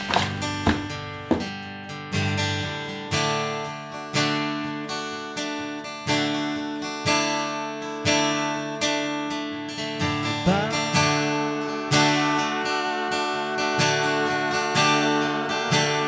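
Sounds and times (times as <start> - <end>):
acoustic guitar strumming chords: 0.0 - 16.0.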